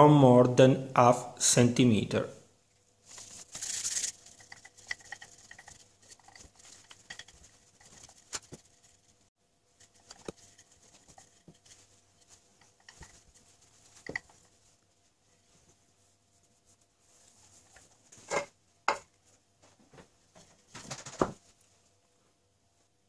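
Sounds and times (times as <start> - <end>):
rolling pin on dough: 4.2 - 9.2, 9.8 - 14.8.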